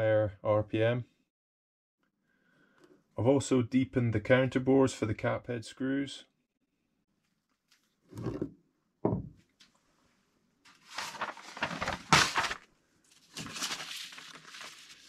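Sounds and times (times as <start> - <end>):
paper rustling and crackling: 10.7 - 15.0.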